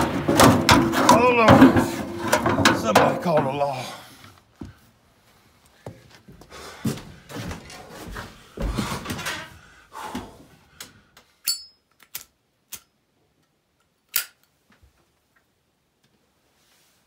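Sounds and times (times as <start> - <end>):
shuffling and rustling: 4.4 - 10.6, 16.1 - 17.0.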